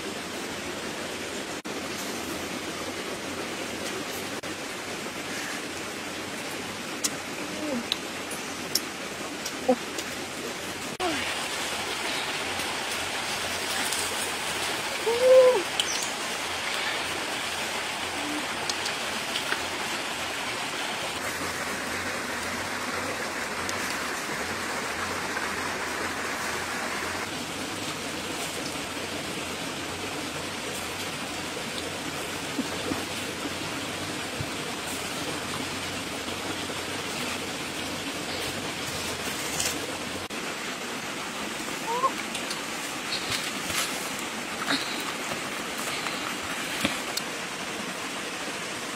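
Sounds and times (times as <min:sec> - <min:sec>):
flowing water rushing: 0:00.0 - 0:48.9.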